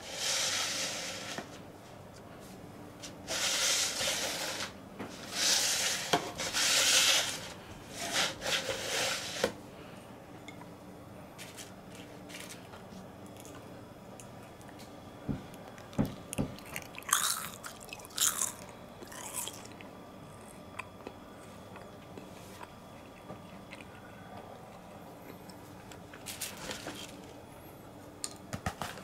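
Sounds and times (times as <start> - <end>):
rustling and scraping at a table: 0.0 - 9.6, 11.4 - 13.1, 26.1 - 27.4.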